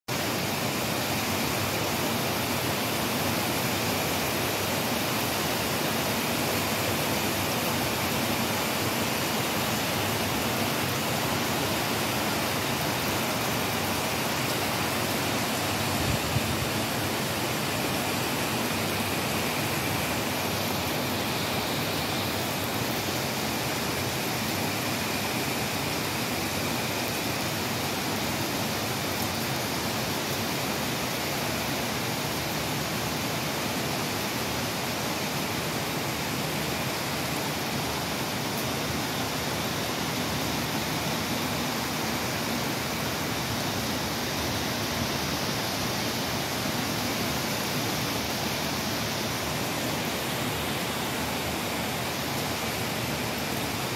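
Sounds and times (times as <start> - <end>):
heavy rain: 0.1 - 53.9.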